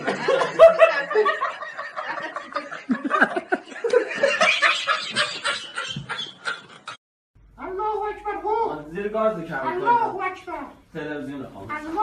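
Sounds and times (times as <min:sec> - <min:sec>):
people laughing: 0:00.0 - 0:07.0.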